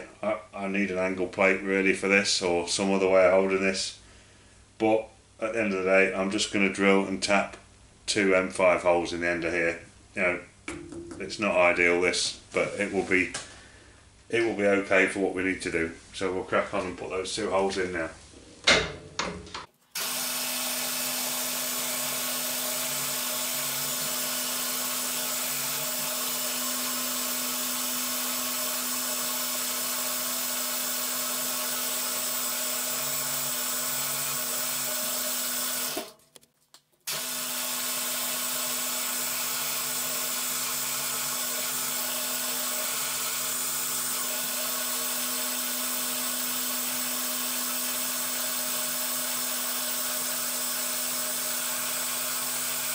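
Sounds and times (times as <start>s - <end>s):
mill-drill drilling into aluminium: 20.0s - 36.1s, 37.1s - 52.9s.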